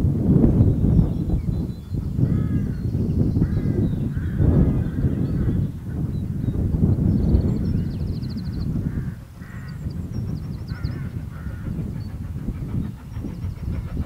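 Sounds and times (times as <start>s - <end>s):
steam locomotive rumble: 0.0s - 14.0s
birds chirping: 0.6s - 14.0s
quick regular locomotive beat: 4.6s - 14.0s.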